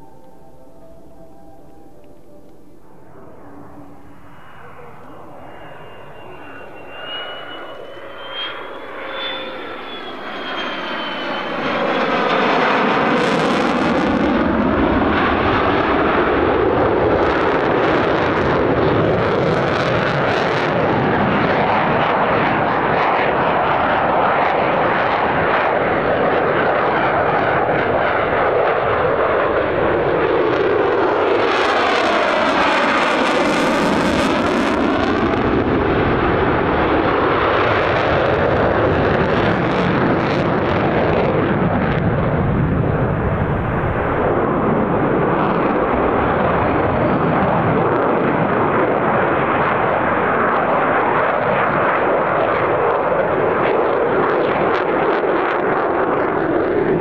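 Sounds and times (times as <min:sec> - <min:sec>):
jet engine roar: 0:00.0 - 0:57.0
jet whooshing by: 0:03.1 - 0:23.8.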